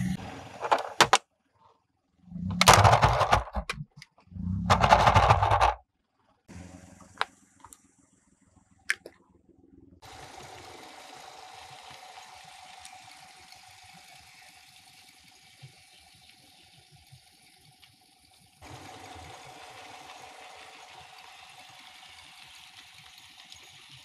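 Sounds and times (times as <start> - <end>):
toy motor whirring: 4.5 - 5.8, 10.1 - 24.0.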